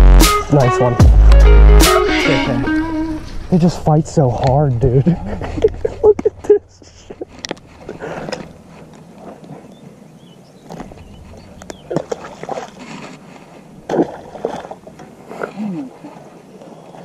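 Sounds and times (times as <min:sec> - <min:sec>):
rustling and handling noise: 0:05.3 - 0:09.7.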